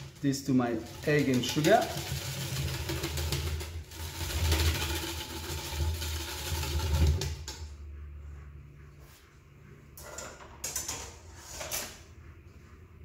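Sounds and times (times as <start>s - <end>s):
whisk beating in metal bowl: 0.0s - 7.8s.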